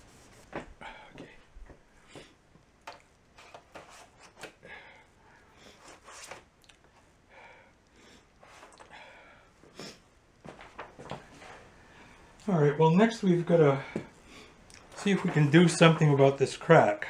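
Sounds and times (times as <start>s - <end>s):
soft sliding rubs: 0.0s - 0.7s, 10.5s - 12.2s, 14.9s - 16.5s.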